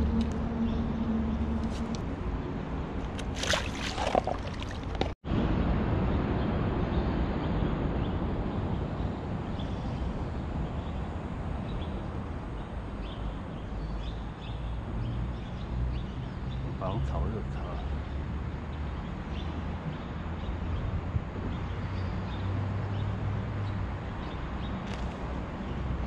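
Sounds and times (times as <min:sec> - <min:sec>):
traffic noise: 0:00.0 - 0:26.0
river flowing: 0:03.0 - 0:05.2
water splashing: 0:03.0 - 0:05.2.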